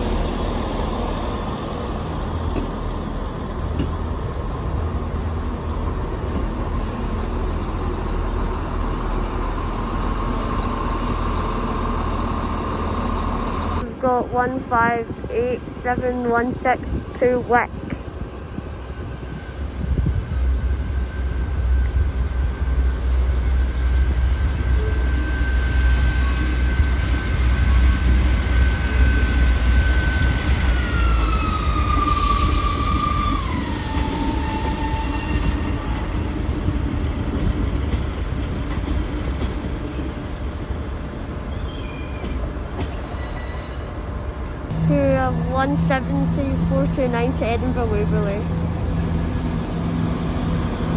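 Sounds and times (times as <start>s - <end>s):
train diesel engine rumble: 0.0s - 50.9s
wheel squeal: 41.5s - 44.6s.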